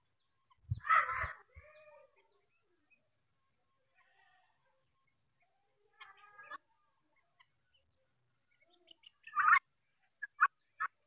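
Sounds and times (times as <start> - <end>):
guineafowl harsh calls: 0.7 - 2.2, 9.0 - 9.6.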